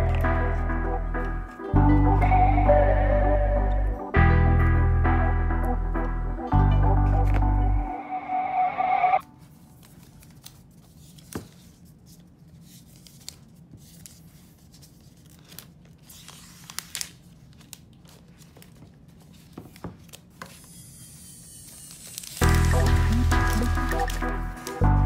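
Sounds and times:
loud music: 0.0s - 9.2s, 22.4s - 25.0s
plastic film crinkling and tearing: 12.8s - 25.0s.

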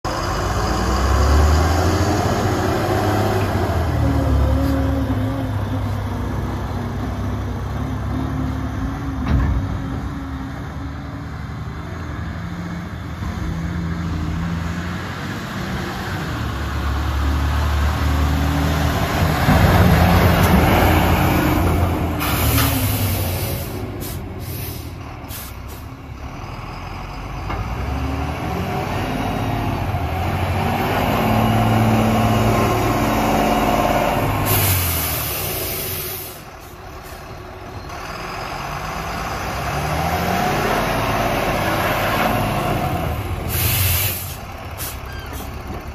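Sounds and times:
diesel engine revving: 0.0s - 45.9s.

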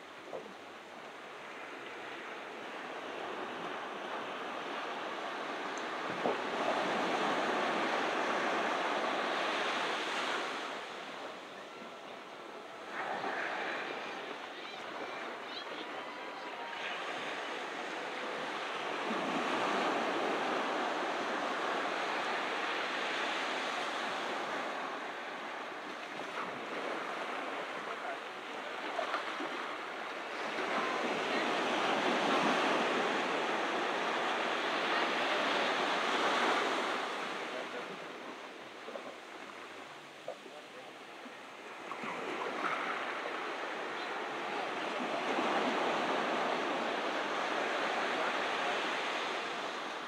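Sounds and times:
ocean surf breaking: 0.0s - 50.0s.

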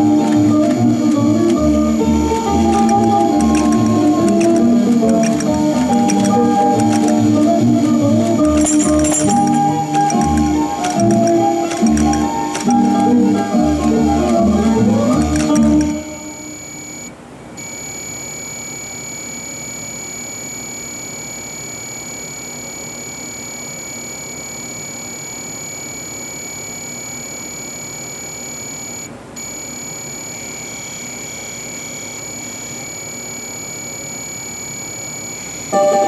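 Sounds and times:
high-pitched electrical whine: 0.0s - 36.0s.

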